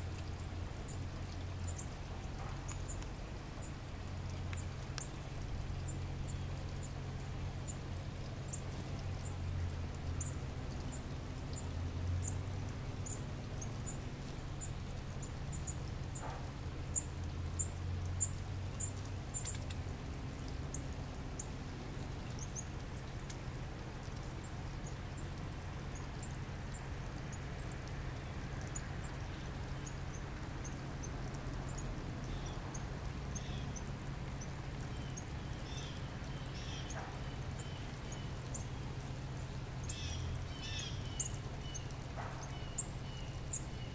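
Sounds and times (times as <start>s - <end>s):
bird chip calls: 34.4s - 38.8s, 39.8s - 43.9s.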